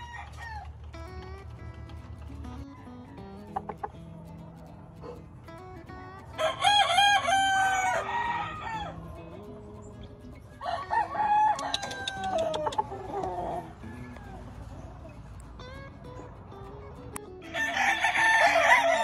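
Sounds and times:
rooster crowing: 0:00.0 - 0:00.8, 0:02.6 - 0:03.7, 0:06.4 - 0:09.0, 0:10.6 - 0:14.9, 0:17.4 - 0:19.0.

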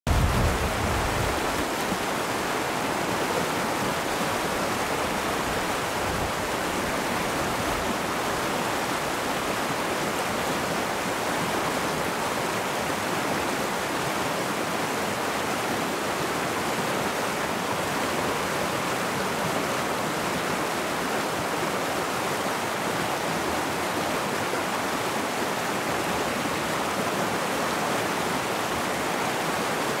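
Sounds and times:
stream rushing over rocks: 0:00.1 - 0:30.0.

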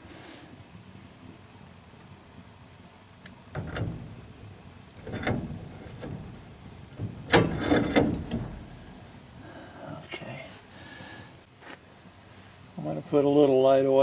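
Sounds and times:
metal scrapes and clunks: 0:03.5 - 0:09.2.

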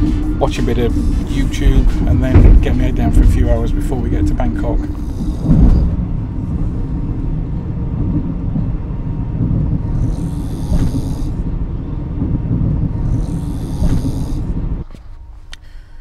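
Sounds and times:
train carriage low rumble: 0:00.0 - 0:16.0
person snoring loudly: 0:00.3 - 0:01.6, 0:09.8 - 0:11.4, 0:12.9 - 0:14.6.

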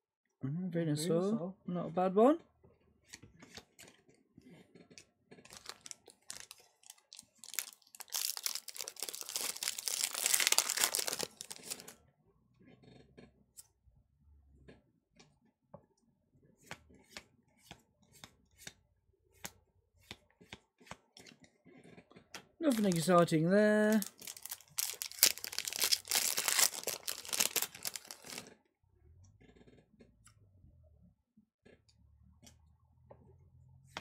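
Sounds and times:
foil pack ripping and crinkling: 0:05.5 - 0:11.9, 0:22.6 - 0:28.5.

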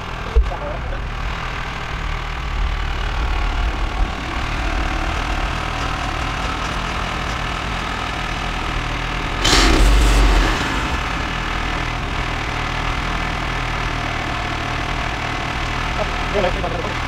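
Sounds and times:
small gas engine idling: 0:00.0 - 0:17.0
loud rush of noise: 0:09.2 - 0:13.4.

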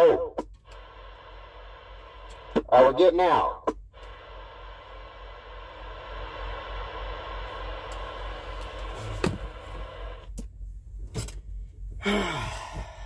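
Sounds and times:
radio static hissing: 0:00.0 - 0:10.3
low truck engine rumble: 0:03.2 - 0:13.0.

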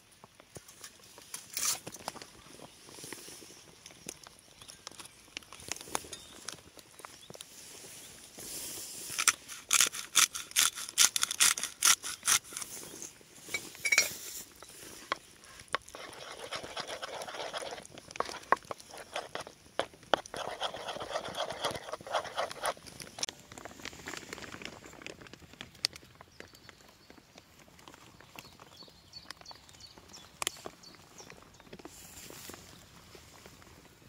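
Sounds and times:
spoon stirring mash in clay bowl: 0:15.1 - 0:23.3.

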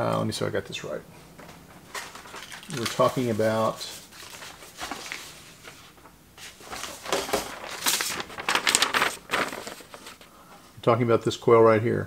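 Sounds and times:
paper rustling: 0:01.5 - 0:10.4.

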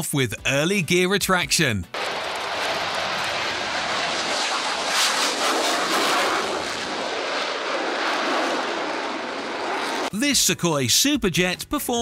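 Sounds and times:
jet engine roar: 0:02.0 - 0:10.1.

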